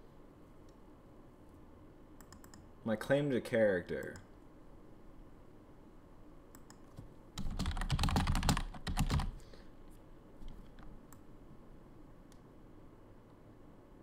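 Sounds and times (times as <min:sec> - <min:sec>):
typing on computer keyboard: 0:06.6 - 0:09.4.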